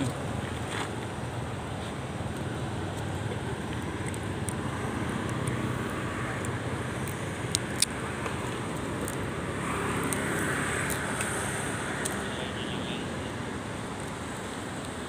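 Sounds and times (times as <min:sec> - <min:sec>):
distant road traffic: 0:00.0 - 0:15.0
sharp clicks: 0:02.3 - 0:05.6.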